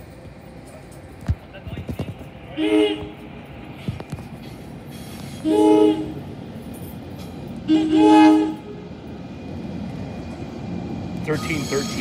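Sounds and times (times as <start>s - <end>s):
low rumble of train: 0.0s - 12.0s
train horn blasts: 2.6s - 3.2s, 5.4s - 6.2s, 7.7s - 8.9s.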